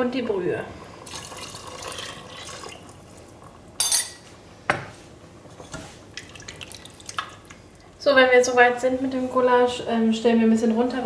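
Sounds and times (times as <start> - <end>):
broth pouring into pot: 0.7 - 3.7, 6.1 - 8.0
mug and spoon clinking on pot: 3.8 - 4.2.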